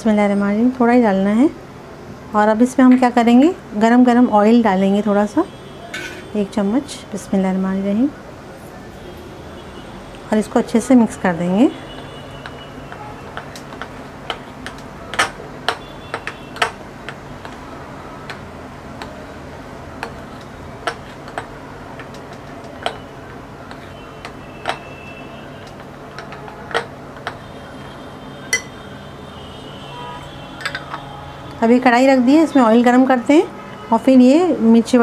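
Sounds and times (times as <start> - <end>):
spoon clicking against glass bowl: 28.5 - 28.7.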